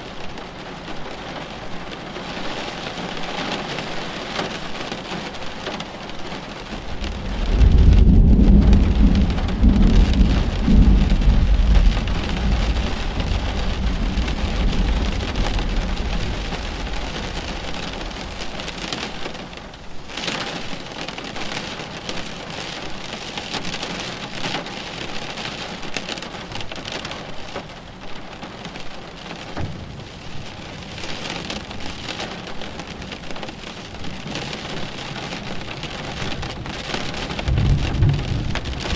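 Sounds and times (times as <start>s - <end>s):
steady rain: 0.0s - 38.9s
rolling thunder rumble: 6.8s - 19.6s, 29.6s - 33.2s, 35.5s - 38.9s.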